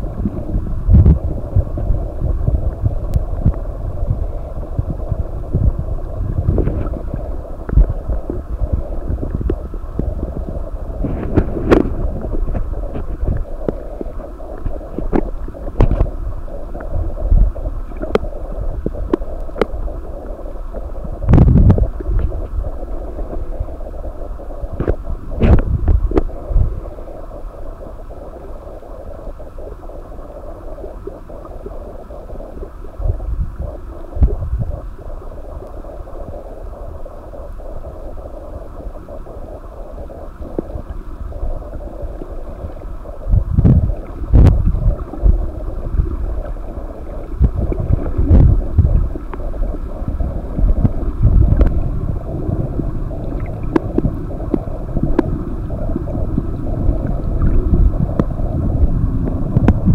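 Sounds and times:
low underwater thumps: 0:00.0 - 0:16.2, 0:43.3 - 0:46.6, 0:47.3 - 0:59.9
underwater gurgling hiss: 0:00.0 - 0:59.9.

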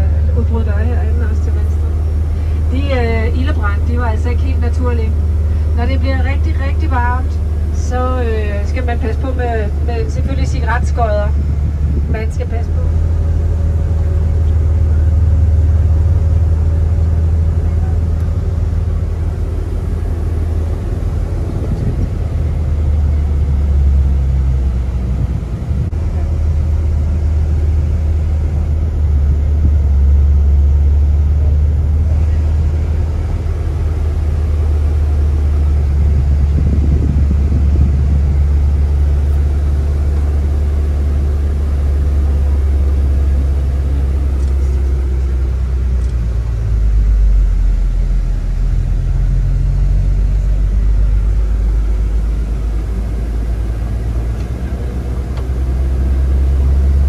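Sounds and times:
vehicle engine and road rumble: 0:00.0 - 0:57.0.

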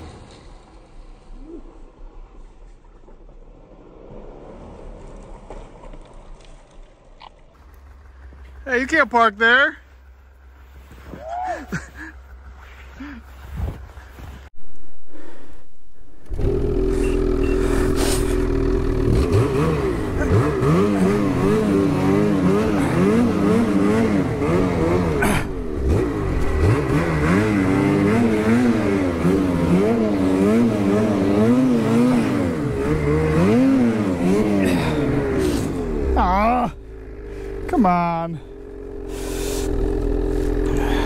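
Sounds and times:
snowmobile engine revving: 0:16.2 - 0:41.0.

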